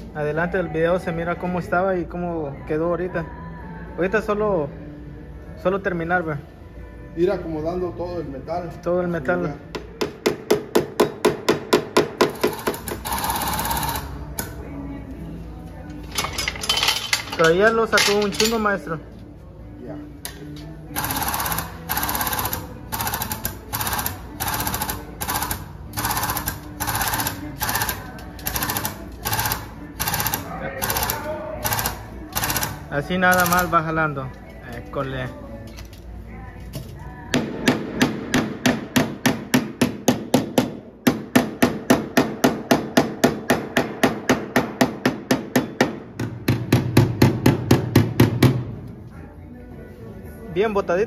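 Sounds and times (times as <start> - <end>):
pneumatic air hammer rapping: 10.1 - 14.6, 21.0 - 33.9.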